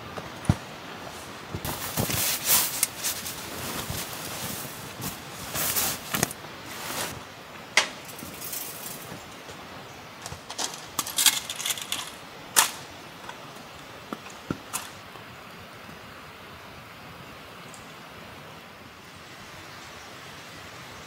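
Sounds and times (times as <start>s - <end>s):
camping gear clicking and clinking: 0.1s - 7.2s, 7.8s - 15.2s
fabric rustling: 0.4s - 7.2s.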